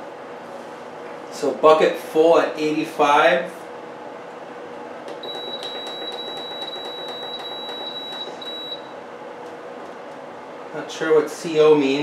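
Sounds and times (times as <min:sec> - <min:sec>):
dehumidifier fan rushing: 0:00.0 - 0:12.0
high-pitched control panel beep: 0:05.2 - 0:08.9.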